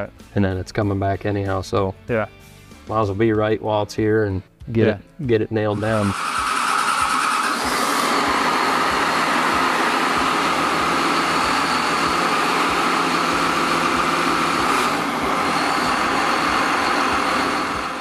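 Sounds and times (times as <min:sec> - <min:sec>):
diesel engine running: 0:05.7 - 0:18.0
steady whine: 0:05.7 - 0:18.0.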